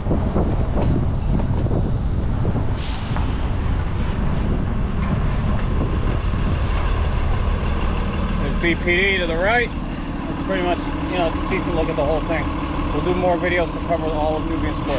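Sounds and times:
bus engine rumble: 0:00.0 - 0:14.9
street traffic: 0:00.0 - 0:14.9
short hiss: 0:02.8 - 0:03.4
thin high squeal: 0:04.1 - 0:04.8.

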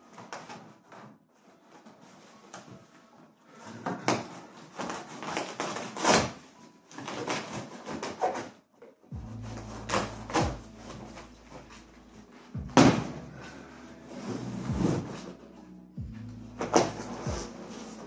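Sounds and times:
cardboard scraping and rustling: 0:00.1 - 0:08.6, 0:09.3 - 0:15.6, 0:16.5 - 0:18.0
low steady hum: 0:09.1 - 0:18.0.

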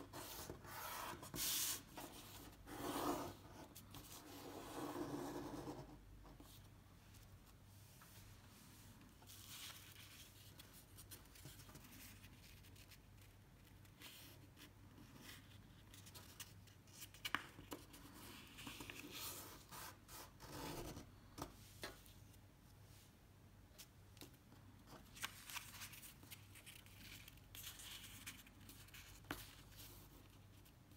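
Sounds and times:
paper rustling and crinkling: 0:24.9 - 0:30.3.

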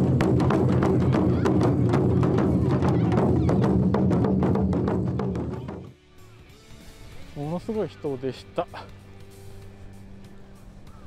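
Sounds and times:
hand-beaten drum and percussion: 0:00.0 - 0:06.0.

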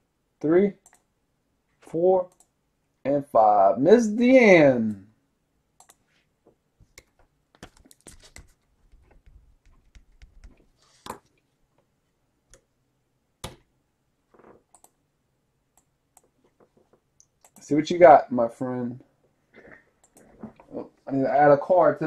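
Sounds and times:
keyboard and mouse clicking: 0:00.8 - 0:01.1, 0:05.8 - 0:06.0, 0:13.4 - 0:13.7, 0:14.7 - 0:15.0, 0:17.2 - 0:17.7.

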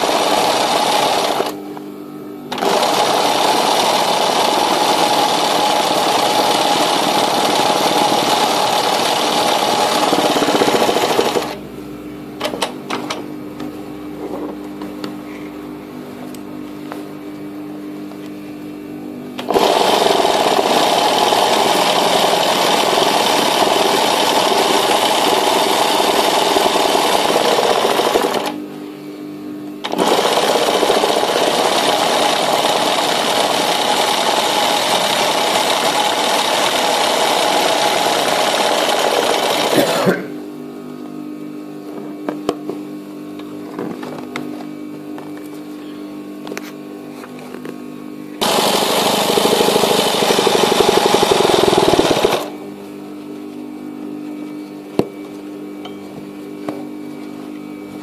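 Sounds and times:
sewing machine stitching: 0:00.0 - 0:01.6, 0:02.5 - 0:11.6, 0:19.4 - 0:28.6, 0:29.8 - 0:40.0, 0:48.4 - 0:52.5.

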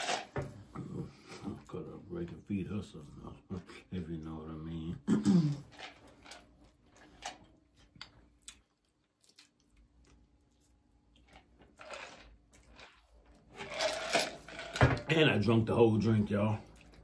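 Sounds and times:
person chewing food: 0:05.6 - 0:13.8, 0:16.6 - 0:17.0.

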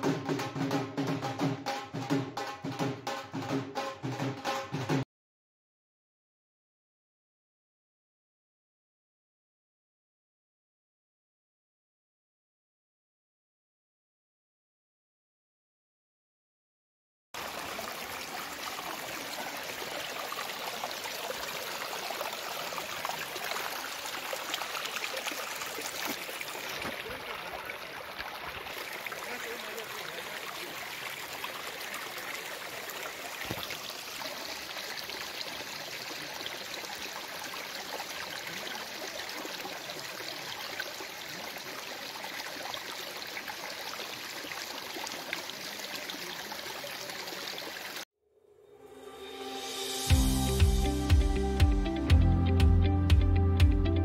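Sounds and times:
stream splashing over rocks: 0:17.4 - 0:48.0.

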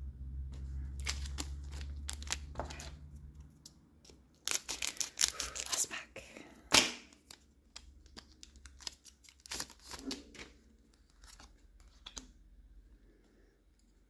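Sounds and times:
trading cards rustling: 0:00.6 - 0:06.0, 0:07.1 - 0:12.2
foil wrapper crinkling: 0:00.9 - 0:03.0, 0:04.4 - 0:05.8, 0:07.2 - 0:10.6.

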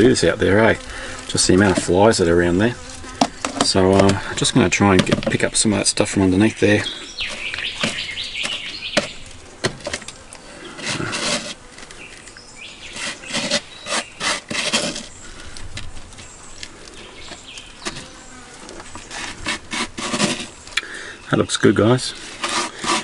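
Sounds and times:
scraping on cutting board: 0:10.6 - 0:11.7, 0:12.9 - 0:15.2, 0:19.0 - 0:20.6, 0:22.2 - 0:23.0.

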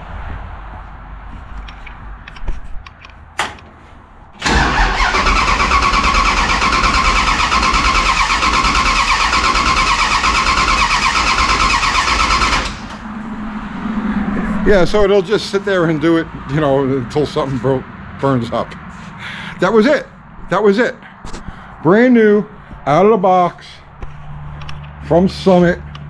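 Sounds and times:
engine cranking on starter: 0:04.4 - 0:13.0.

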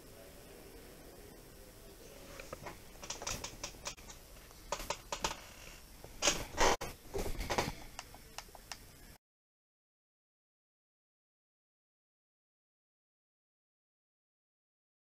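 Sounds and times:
light clicks and taps: 0:07.5 - 0:08.9.

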